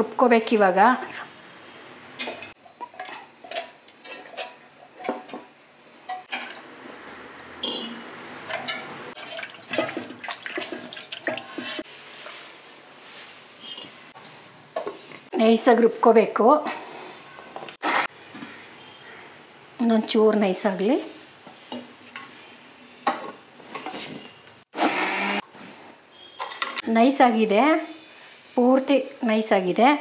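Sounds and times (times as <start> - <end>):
spoon scraping and tapping metal: 7.6 - 10.0.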